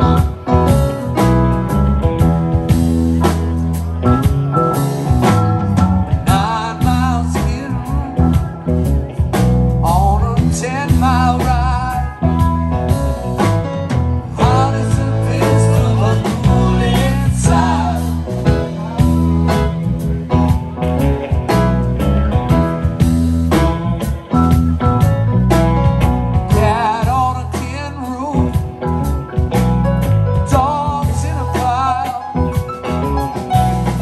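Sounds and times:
bending lead guitar notes: 0.0 - 34.0
blues-rock band playing: 0.0 - 34.0.

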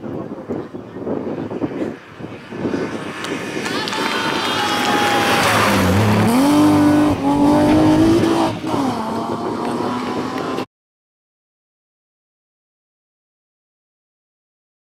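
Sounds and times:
rally car engine at full throttle: 0.1 - 10.7.

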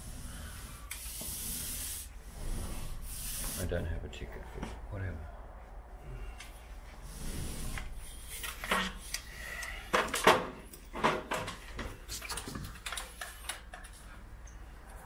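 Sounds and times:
paint roller rubbing: 0.0 - 4.0, 7.0 - 9.1.

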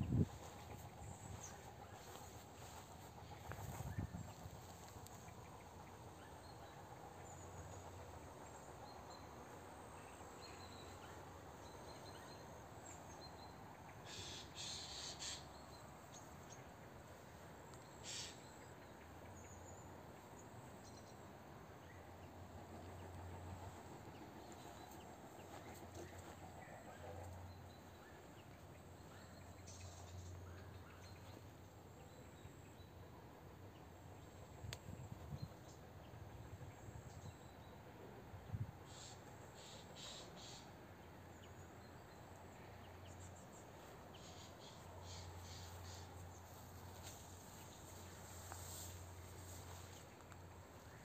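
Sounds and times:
distant bird calls: 14.0 - 16.6, 17.8 - 19.8, 38.8 - 40.8
faint low hum: 15.4 - 51.0.

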